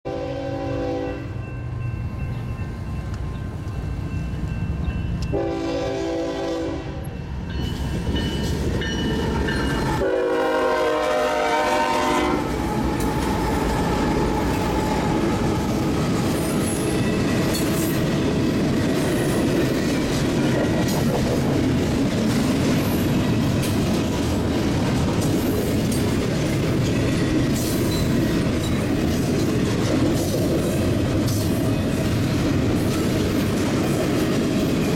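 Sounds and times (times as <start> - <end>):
train air horn blasts: 0.1 - 1.4, 5.3 - 7.2, 10.0 - 12.6
train wheels clattering over rail joints: 12.6 - 34.9.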